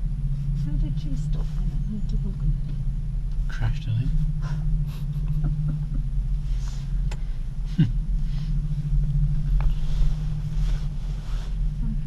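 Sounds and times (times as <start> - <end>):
gondola cabin rumbling on cable: 0.0 - 12.0.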